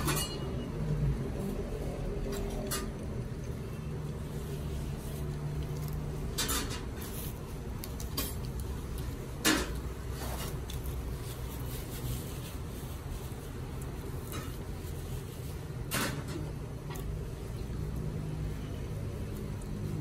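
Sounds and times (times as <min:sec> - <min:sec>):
dishes and cutlery clinking: 0:00.0 - 0:00.8, 0:06.2 - 0:07.2.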